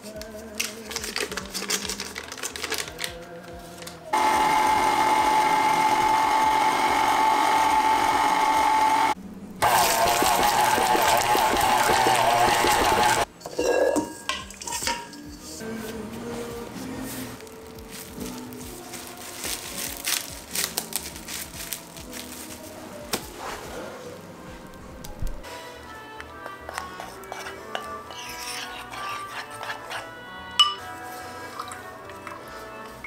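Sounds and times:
electric mixer whining: 4.2s - 13.3s.

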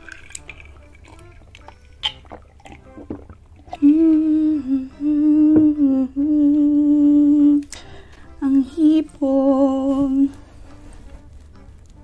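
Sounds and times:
woman humming: 3.7s - 7.7s.

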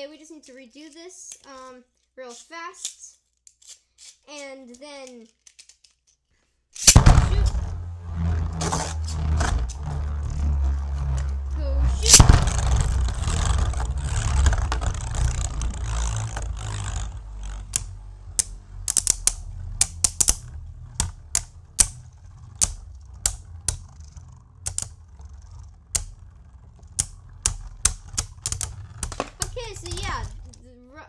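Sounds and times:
spinning tops whirring and scraping: 6.8s - 30.8s
spinning tops clacking together: 12.0s - 25.0s, 25.9s - 30.6s.

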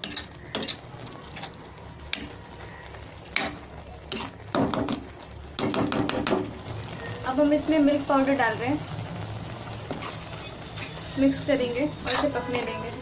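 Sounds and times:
spatula scraping wet food: 0.0s - 2.3s, 3.4s - 4.4s, 8.9s - 13.0s.

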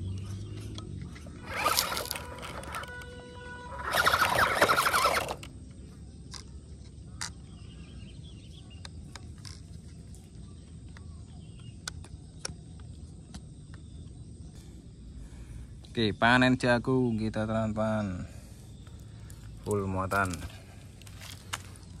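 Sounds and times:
toy truck motor running: 0.0s - 5.6s
wheels grinding over gravel: 0.0s - 7.7s, 18.8s - 22.0s
faint outdoor background: 0.0s - 22.0s.

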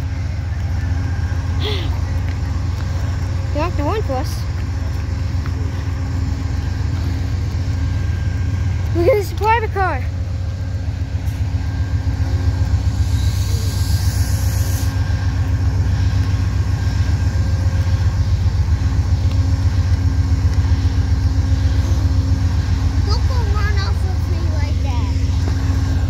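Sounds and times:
diesel locomotive idling: 0.0s - 26.0s.

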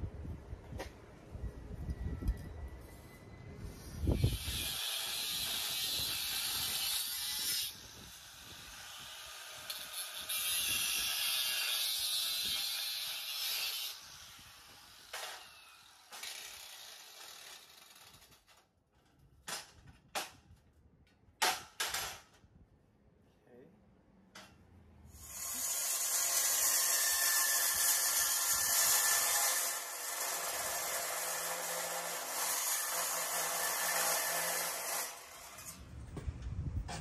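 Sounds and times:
power tool cutting steel tubing: 3.8s - 18.4s, 25.1s - 35.9s.

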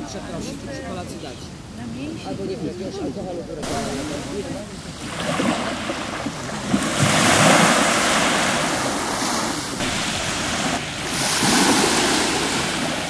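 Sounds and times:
waves washing up pebble shore: 3.6s - 13.0s.

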